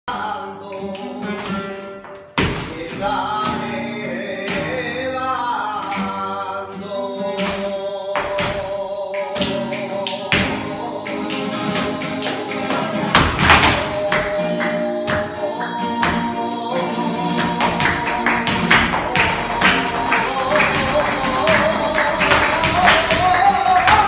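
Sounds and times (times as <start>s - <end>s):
flamenco guitar: 0.1s - 24.0s.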